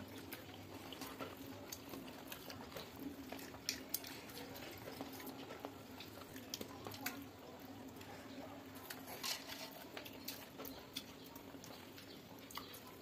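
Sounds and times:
chewing: 0:00.0 - 0:13.0
fingers mixing rice on steel plate: 0:08.6 - 0:13.0.

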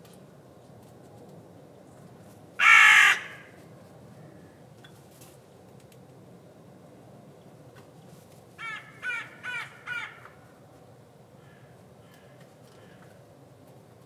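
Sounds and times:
crow cawing: 0:02.6 - 0:03.6, 0:08.6 - 0:10.4, 0:11.4 - 0:13.2.

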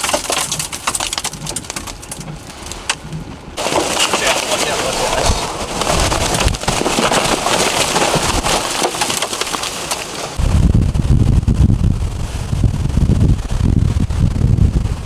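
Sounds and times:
debris clattering on pavement: 0:00.0 - 0:10.4
hurricane winds: 0:00.0 - 0:15.0
wind buffeting microphone: 0:00.5 - 0:08.8, 0:10.2 - 0:15.0
heavy rain: 0:02.2 - 0:15.0
waves breaking: 0:02.5 - 0:10.4.

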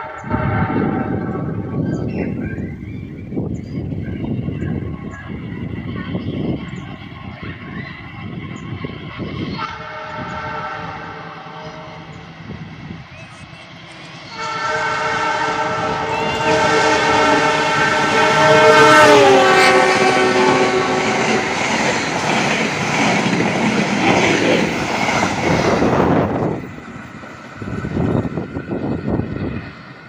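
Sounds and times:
train horn: 0:00.0 - 0:02.1, 0:04.2 - 0:12.6, 0:13.6 - 0:23.2
train wheels on rails: 0:00.0 - 0:30.0.

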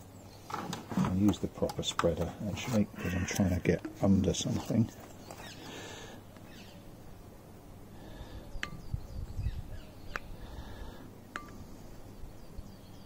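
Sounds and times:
faint bird chirps: 0:05.1 - 0:06.9, 0:08.2 - 0:10.8.

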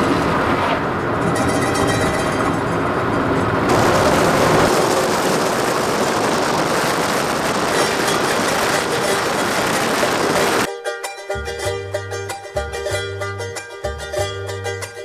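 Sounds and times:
car road and engine rumble: 0:00.0 - 0:10.7.

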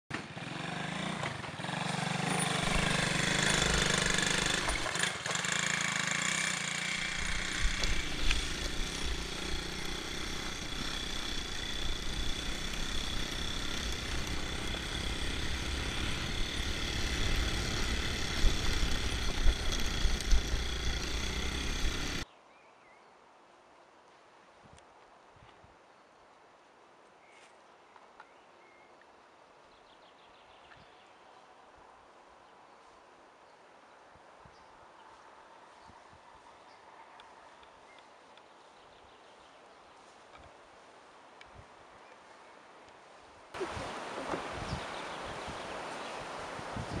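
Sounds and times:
quad bike engine running: 0:00.1 - 0:22.2
wind rumble on microphone: 0:43.6 - 0:47.0.

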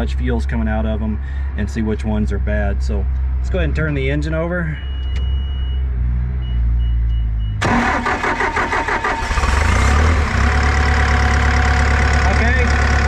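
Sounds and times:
short electronic beeps: 0:04.7 - 0:07.6
diesel engine cranking and running: 0:07.6 - 0:13.0.

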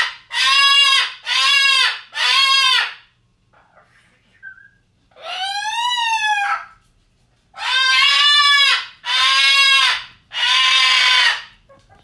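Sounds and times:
pet shrill screaming calls: 0:00.0 - 0:03.0, 0:05.1 - 0:06.7, 0:07.6 - 0:11.5.

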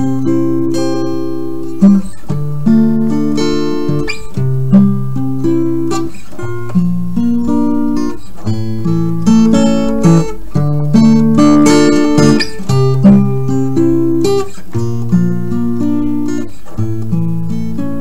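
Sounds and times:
acoustic guitar music: 0:00.0 - 0:18.0.

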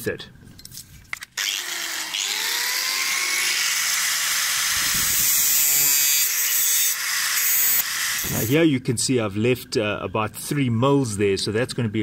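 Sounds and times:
angle grinder cutting metal: 0:01.4 - 0:08.6.

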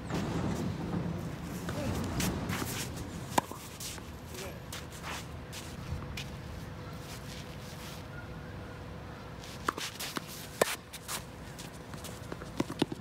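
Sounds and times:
shoe scuffs on court: 0:02.2 - 0:08.1, 0:09.4 - 0:12.4
tennis racket striking ball: 0:02.5 - 0:04.0, 0:09.6 - 0:10.8.

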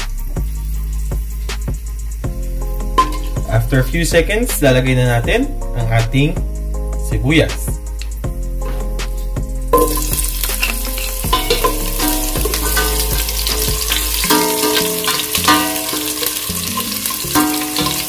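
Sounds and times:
onions sizzling in hot oil: 0:00.2 - 0:04.0, 0:09.7 - 0:18.0
spoon stirring in pot: 0:09.7 - 0:18.0.

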